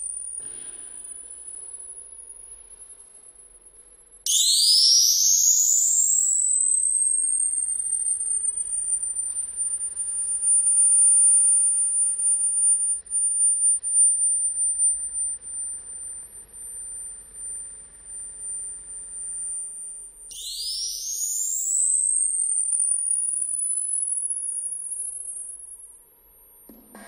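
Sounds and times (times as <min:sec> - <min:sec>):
camera flash charging whine: 0:00.0 - 0:26.7
whine sweeping upward: 0:20.3 - 0:23.3.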